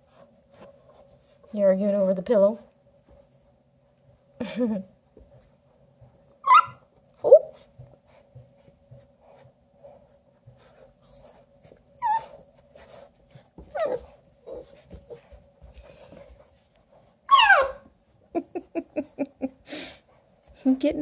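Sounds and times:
puppies yipping: 6.4s - 6.8s, 17.3s - 17.8s
puppies whining squeals: 6.4s - 7.5s, 11.0s - 14.8s, 17.3s - 17.8s.

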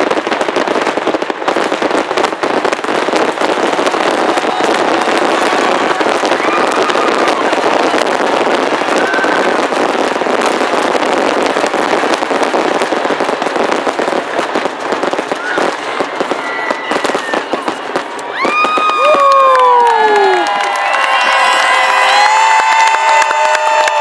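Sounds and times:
fireworks bursting and crackling: 0.0s - 24.0s
crowd cheering and whistling: 3.7s - 11.2s, 15.3s - 24.0s.

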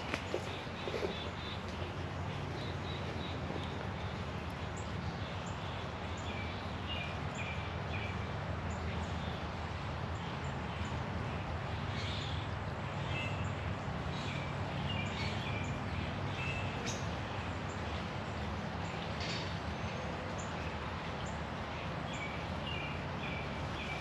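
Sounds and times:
small birds chirping: 0.0s - 9.4s
creek flowing over stones: 0.0s - 24.0s.

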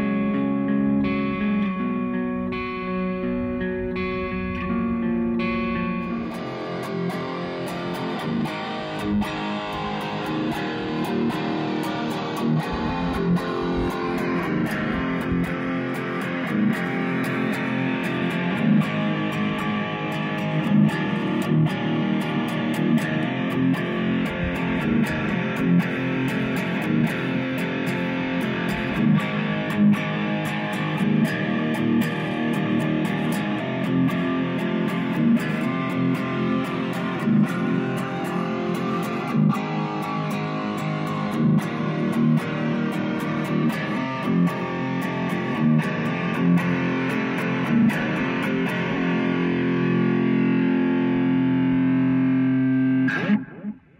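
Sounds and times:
distorted electric guitar: 0.0s - 53.9s
steady beat: 2.8s - 17.7s, 23.3s - 29.6s.

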